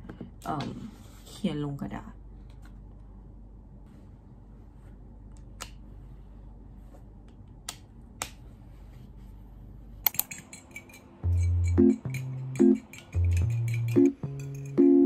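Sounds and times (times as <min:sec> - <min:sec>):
low room hum: 0:00.0 - 0:15.0
sharp clicks: 0:10.0 - 0:10.5
fork beating egg on plate: 0:10.3 - 0:14.8.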